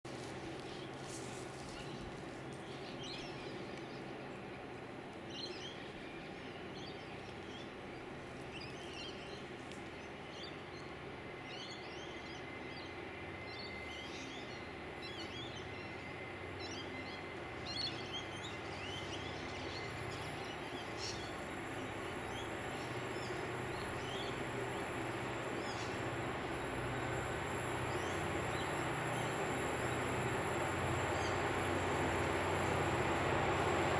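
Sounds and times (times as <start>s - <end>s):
small birds chirping: 13.9s - 33.9s
low background rumble: 15.1s - 33.9s.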